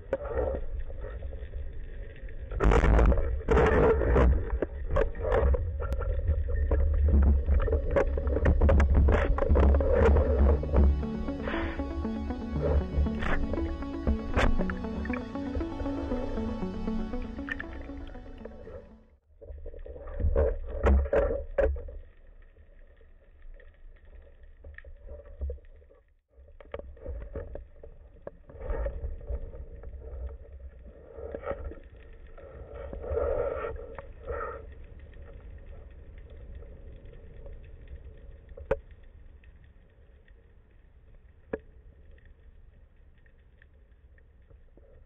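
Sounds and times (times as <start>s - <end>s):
muffled underwater rushing and bubbling: 0.0s - 19.0s.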